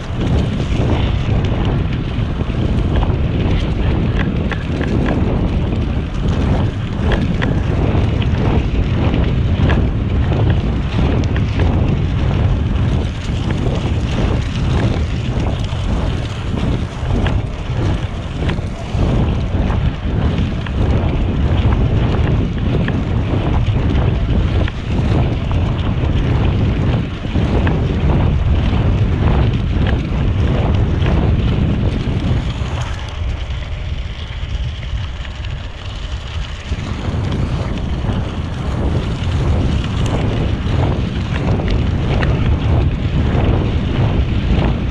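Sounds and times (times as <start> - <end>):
bicycle tyres rolling: 0.0 - 44.9
wind buffeting microphone: 0.0 - 44.9
small ticks: 3.5 - 5.2.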